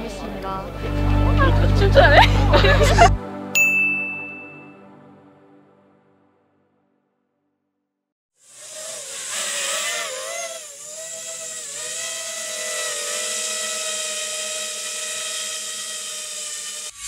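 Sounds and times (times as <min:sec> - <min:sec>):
drone propellers whining: 0:08.6 - 0:17.0.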